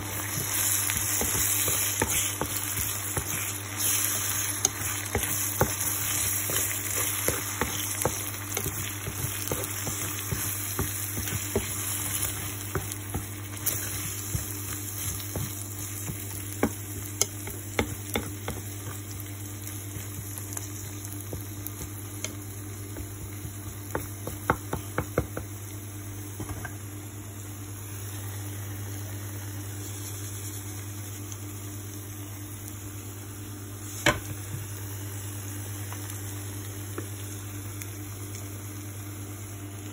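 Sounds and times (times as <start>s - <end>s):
food sizzling in a frying pan: 0.0s - 39.9s
wooden spatula scraping a pan: 0.3s - 15.5s.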